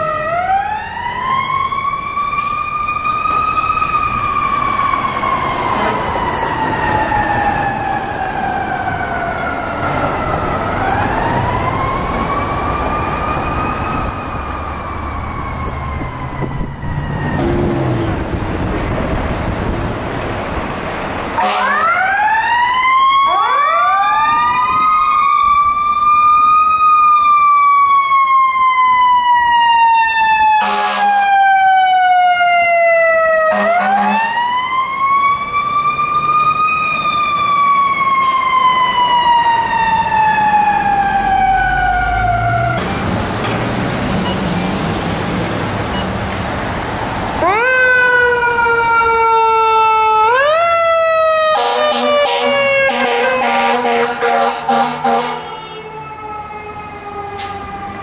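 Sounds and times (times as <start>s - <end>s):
truck engine rumble: 0.0s - 22.6s, 32.8s - 58.0s
sirens wailing: 0.0s - 58.0s
horn blast: 21.4s - 22.0s, 30.6s - 31.2s, 33.5s - 34.4s, 51.6s - 55.8s.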